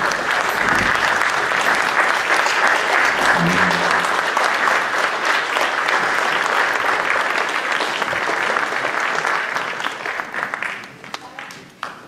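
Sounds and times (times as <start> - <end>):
large audience applauding: 0.0 - 12.0.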